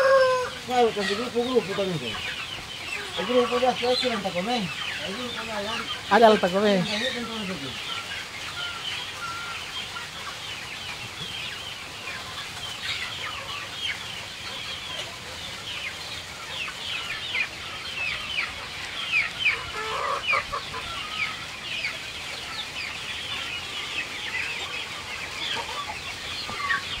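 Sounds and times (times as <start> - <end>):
lower chicken calls: 0.0 - 11.3, 12.0 - 27.0
chicks peeping: 0.0 - 27.0.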